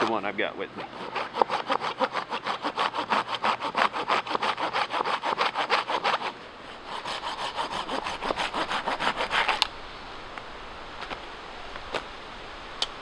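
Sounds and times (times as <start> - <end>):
hand saw cutting log: 0.0 - 9.7.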